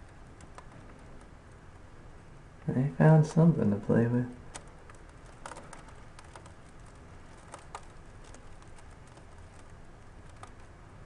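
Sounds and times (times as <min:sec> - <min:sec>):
soft clicks and rustling: 0:00.0 - 0:01.9, 0:04.4 - 0:10.8
low steady rumble: 0:00.0 - 0:11.0.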